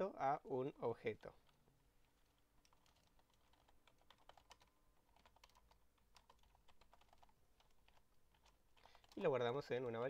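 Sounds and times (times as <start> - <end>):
keyboard typing clicks: 2.6 - 9.2.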